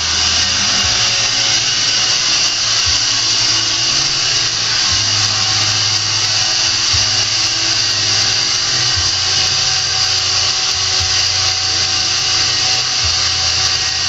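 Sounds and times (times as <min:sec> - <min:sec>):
low hum: 0:00.0 - 0:14.0
machine whir: 0:00.0 - 0:14.0.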